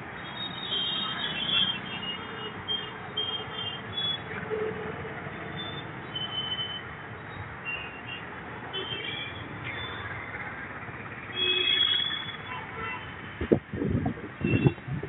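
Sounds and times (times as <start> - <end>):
passing vehicles rumble and hiss: 9.4 - 11.4.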